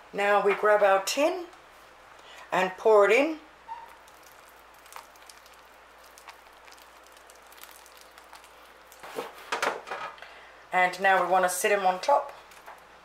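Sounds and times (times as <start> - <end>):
custard pouring onto pastry: 3.8 - 9.5.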